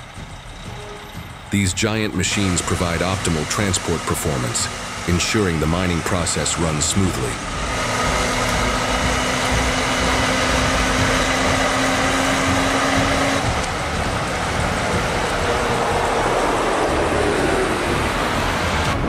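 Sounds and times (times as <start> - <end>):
road noise: 0.0 - 19.0
steady low drone: 0.0 - 19.0
truck diesel engines running: 0.0 - 19.0.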